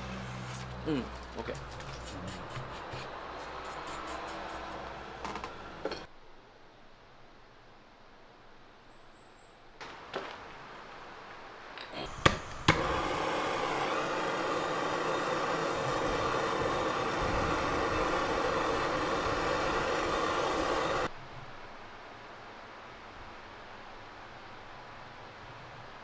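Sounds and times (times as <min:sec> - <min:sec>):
torch flame hissing: 0:12.0 - 0:21.1
torch igniter clicks: 0:12.1 - 0:21.1.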